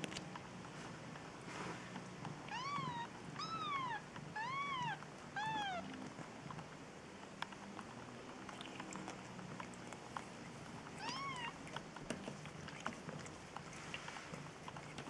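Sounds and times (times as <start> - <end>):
kitten mewing: 2.5 - 5.9, 11.0 - 11.6.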